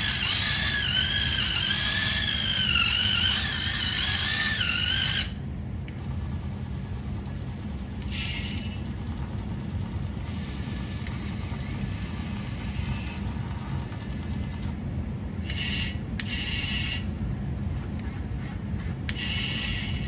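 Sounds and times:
small electric motors whining: 0.0 - 5.4, 8.0 - 14.7, 15.4 - 17.1, 19.1 - 20.0.

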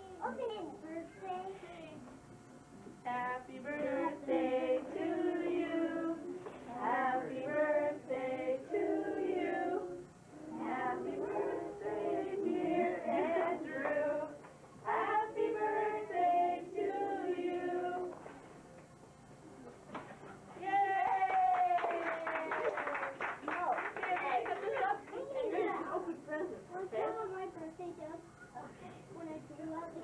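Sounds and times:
women and children singing: 3.1 - 18.2.

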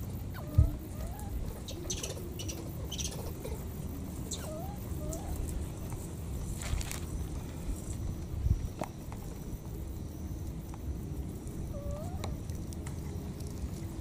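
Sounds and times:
monkey coo calls: 0.2 - 5.8, 11.7 - 12.4
dry leaves crackling underfoot: 4.2 - 8.1.

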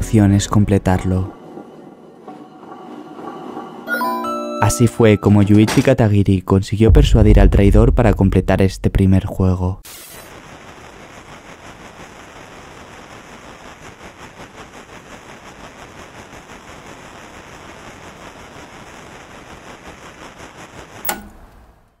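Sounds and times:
sharp static burst: 9.8 - 21.0
static hiss: 9.8 - 22.0.

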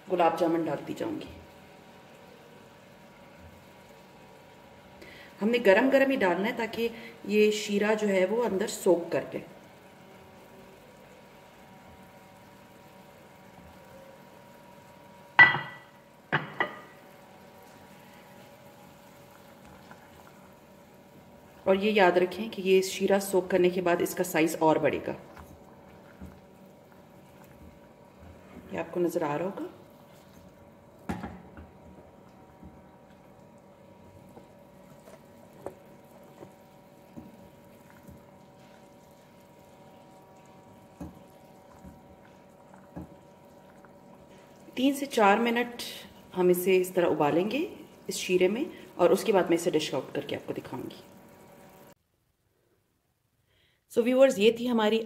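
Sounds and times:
sugar syrup bubbling: 0.8 - 52.0
spoon knocking against pan: 15.4 - 16.9.

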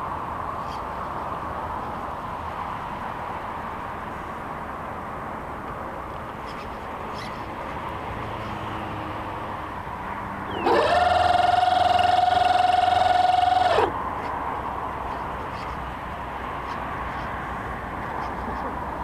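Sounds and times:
small electric motor whine: 10.5 - 14.0.

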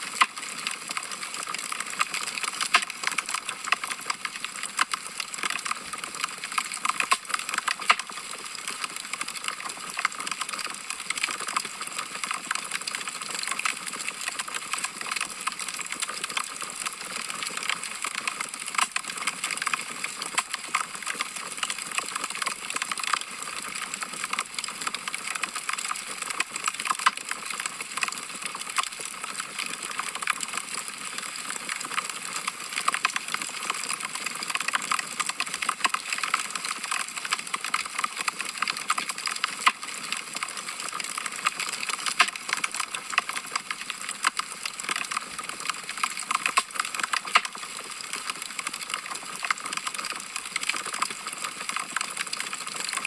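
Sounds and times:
wood fire crackling: 6.8 - 8.2.

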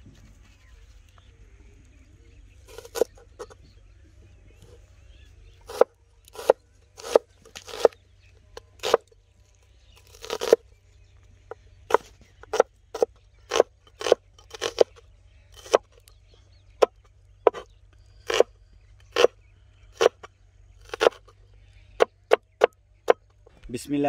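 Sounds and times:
knife chopping onions on wooden board: 5.7 - 8.0, 8.8 - 9.0, 11.9 - 14.9, 17.5 - 17.7, 20.0 - 21.2.

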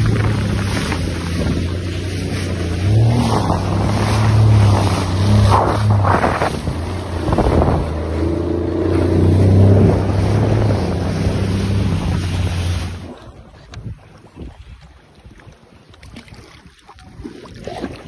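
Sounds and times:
water spray splashing: 0.0 - 13.3
jet ski engine droning: 0.0 - 14.3
wind buffeting microphone: 0.0 - 17.3.

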